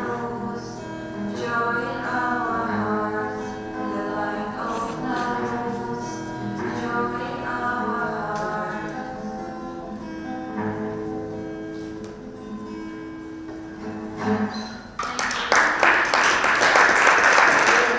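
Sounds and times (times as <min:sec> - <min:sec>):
acoustic guitar chords: 0:00.0 - 0:15.1
applause: 0:15.0 - 0:17.9.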